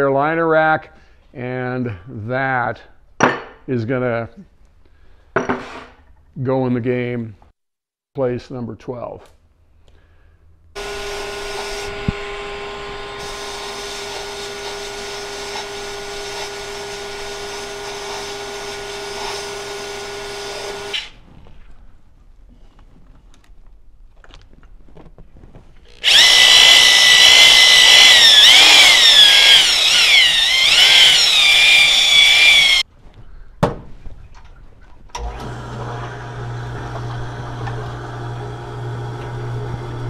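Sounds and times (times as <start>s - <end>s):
power drill spinning: 10.8s - 21.2s, 25.9s - 32.8s, 35.2s - 40.0s.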